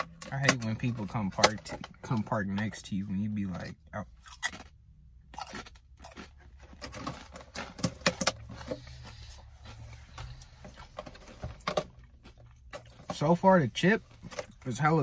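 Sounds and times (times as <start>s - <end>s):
potato chip crunching: 4.1s - 10.2s.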